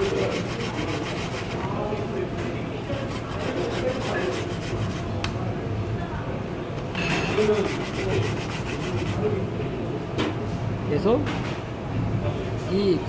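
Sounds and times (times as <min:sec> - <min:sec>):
potato grating scraping: 0:00.0 - 0:01.7, 0:03.0 - 0:05.1, 0:07.3 - 0:09.3.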